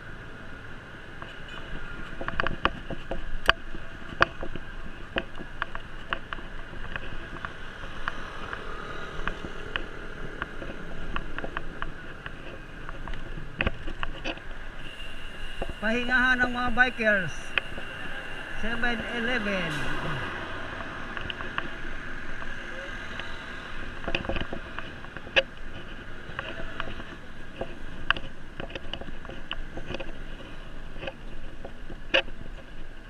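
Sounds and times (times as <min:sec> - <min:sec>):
bicycle riding hum: 0:00.0 - 0:33.0
bicycle clicks and rattles: 0:02.1 - 0:16.5, 0:21.0 - 0:33.0.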